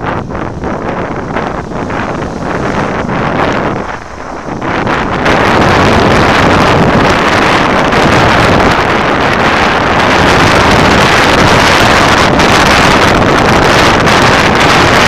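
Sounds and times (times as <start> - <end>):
wind rushing over microphone: 0.0 - 15.0.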